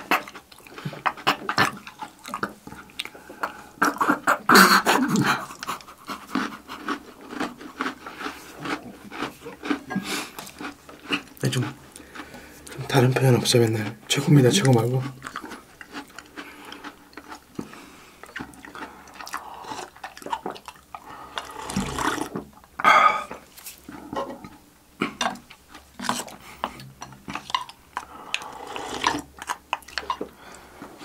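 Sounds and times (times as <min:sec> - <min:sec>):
slurping milk from bowl: 0:18.4 - 0:22.4, 0:28.0 - 0:29.3.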